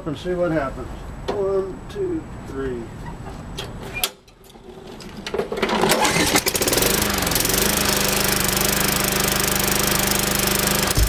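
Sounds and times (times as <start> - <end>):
lawn mower engine starting and running: 3.2 - 11.0.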